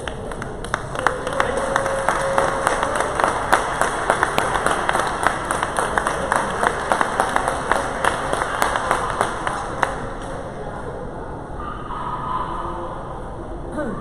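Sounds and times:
spectators applauding: 0.0 - 10.6.

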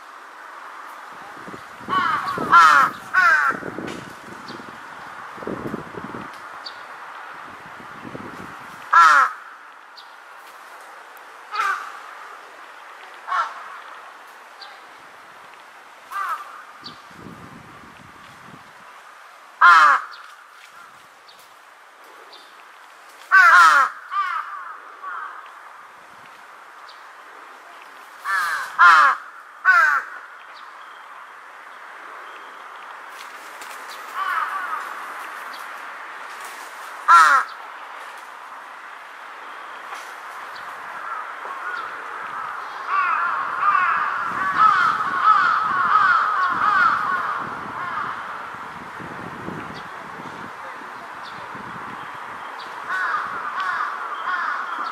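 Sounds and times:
crow cawing: 1.9 - 3.7, 8.9 - 9.7, 11.5 - 12.2, 13.2 - 13.8, 16.1 - 16.8, 19.6 - 20.9, 23.3 - 25.6, 28.2 - 30.4, 34.1 - 35.1, 37.0 - 37.6, 41.0 - 48.5, 52.9 - 54.9.

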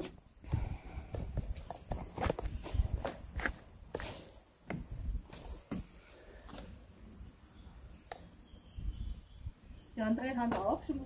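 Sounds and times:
footsteps on wood chips: 0.0 - 6.7.

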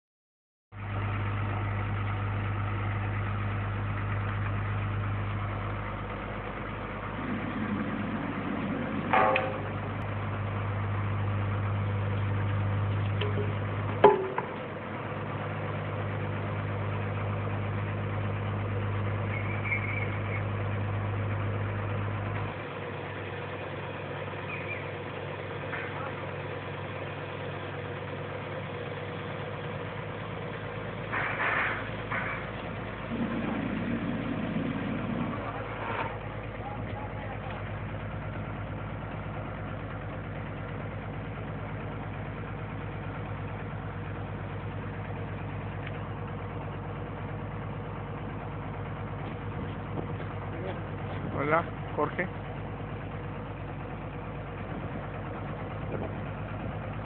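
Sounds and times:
truck engine running: 0.7 - 57.0
sharp metal clanks: 9.1 - 9.9, 13.2 - 14.6.

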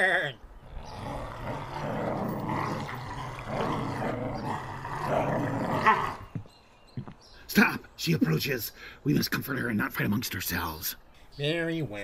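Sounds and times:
creatures growling and snarling: 0.6 - 6.3.

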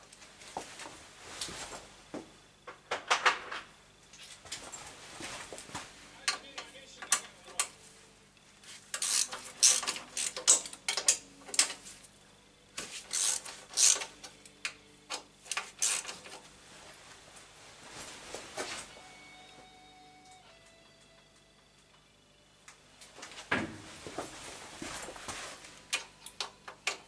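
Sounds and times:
hand tools clinking on metal: 8.9 - 11.8.

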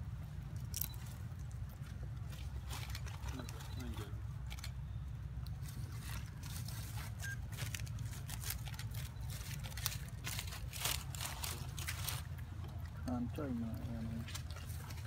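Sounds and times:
monkey chewing crunchy food: 0.4 - 4.8, 5.4 - 15.0.

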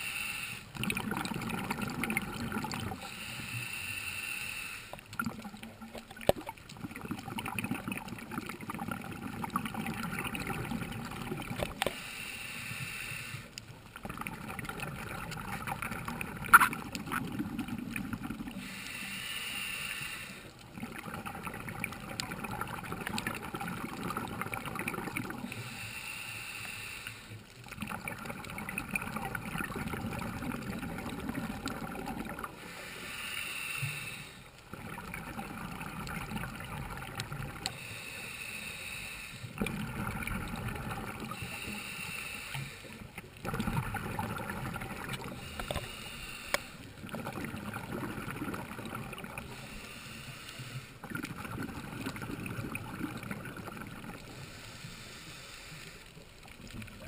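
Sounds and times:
regulator inhale hiss: 0.0 - 0.8, 2.9 - 5.1, 11.7 - 13.7, 18.5 - 20.6, 25.4 - 27.5, 32.5 - 34.6, 37.6 - 39.6, 41.2 - 43.2, 45.3 - 47.0, 49.4 - 51.1, 54.2 - 56.5
exhaled bubbles rushing: 0.8 - 3.0, 5.1 - 11.8, 14.0 - 18.6, 20.7 - 25.5, 27.7 - 32.6, 34.7 - 37.7, 39.6 - 41.4, 43.4 - 45.4, 46.9 - 49.6, 51.0 - 54.4.

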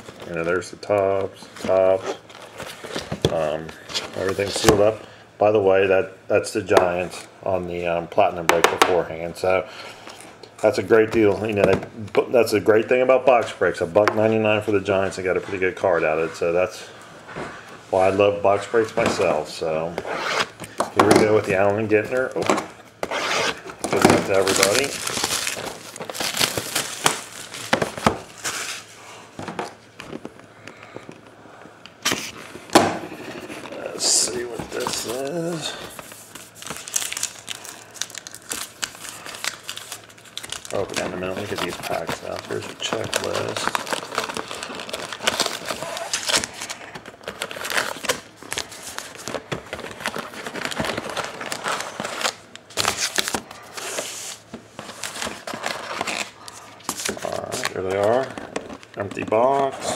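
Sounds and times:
plastic shrink-wrap crinkling: 24.2 - 28.9, 33.6 - 59.9.

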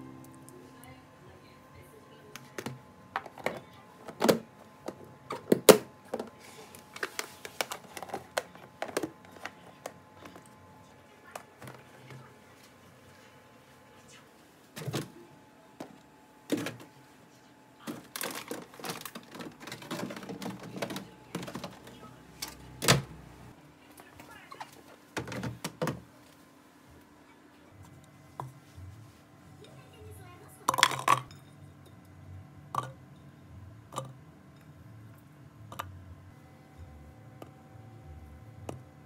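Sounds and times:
plastic containers knocking: 7.0 - 9.6, 17.9 - 22.0, 25.2 - 26.0.

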